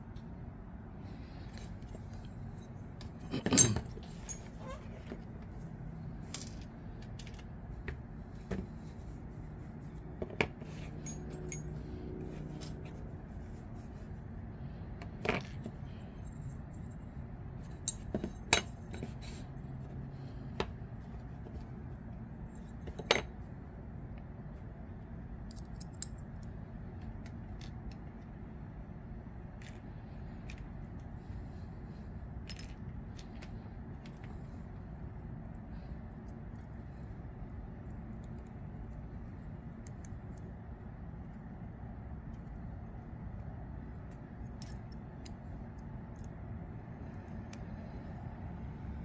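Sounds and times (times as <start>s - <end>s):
small metal parts clicking: 25.4s - 28.1s, 43.9s - 46.4s.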